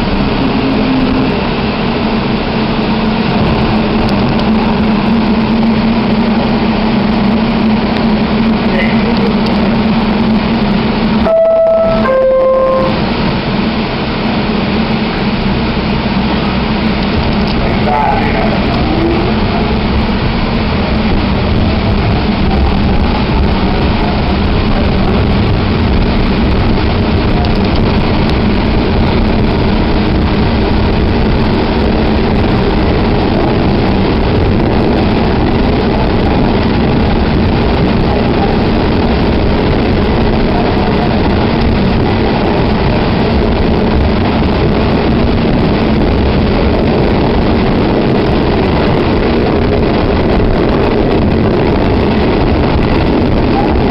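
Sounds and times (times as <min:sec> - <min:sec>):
train motor hum: 0:00.0 - 0:53.9
train wheels rumbling on rail: 0:00.0 - 0:53.9
faint rising whine: 0:09.8 - 0:15.4.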